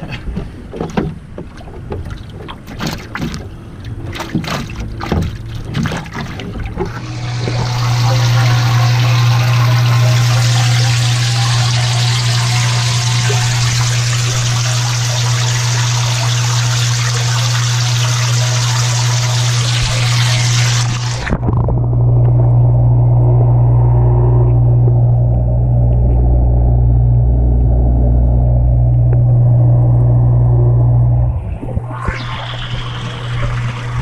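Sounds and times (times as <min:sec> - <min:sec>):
churning water: 0:00.0 - 0:23.6, 0:30.8 - 0:34.0
steady low hum: 0:00.0 - 0:34.0
knocks and splashes in bucket: 0:00.3 - 0:07.6.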